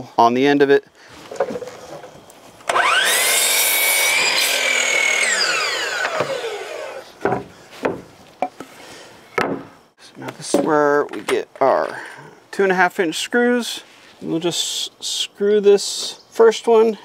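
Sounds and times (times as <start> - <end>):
miter saw motor whine: 2.6 - 7.2
saw blade cutting wood: 2.7 - 7.1.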